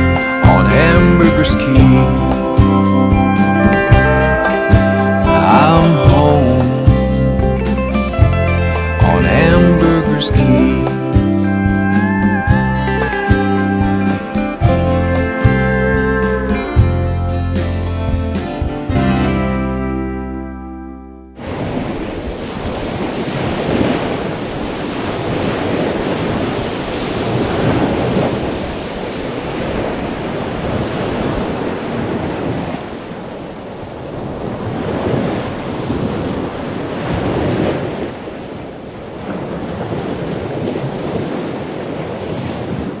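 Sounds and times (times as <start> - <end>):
ocean surf washing in: 0.0 - 16.9, 21.4 - 43.0
wind buffeting microphone: 21.4 - 43.0.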